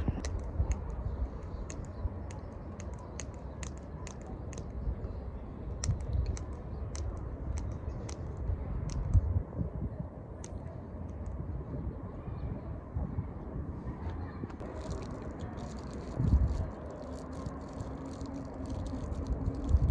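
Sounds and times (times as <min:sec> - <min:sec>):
wind rumbling on microphone: 0:00.0 - 0:19.9
hands handling small items: 0:14.6 - 0:19.9.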